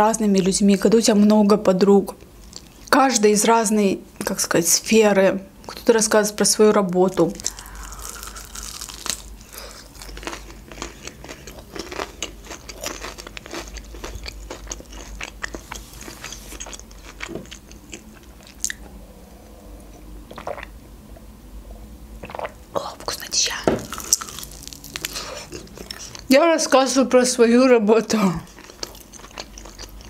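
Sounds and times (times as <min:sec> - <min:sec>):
crunching and chewing fried chicken: 0:07.1 - 0:18.8, 0:23.9 - 0:26.3, 0:28.4 - 0:30.0.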